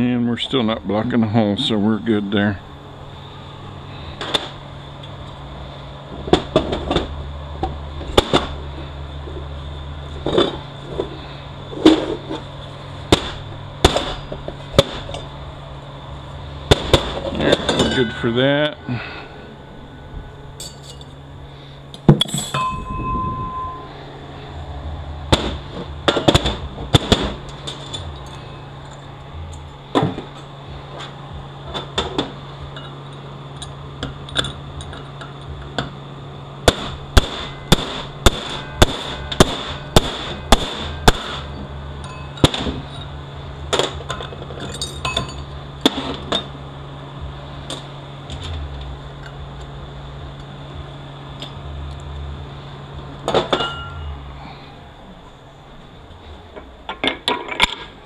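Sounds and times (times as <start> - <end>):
hammer striking metal: 16.7 - 18.7, 22.1 - 23.9, 36.7 - 43.1, 53.3 - 54.2
knocks and clinks: 17.2 - 18.4, 20.6 - 21.2, 22.0 - 23.9, 41.4 - 43.2, 44.0 - 45.5, 53.3 - 54.2.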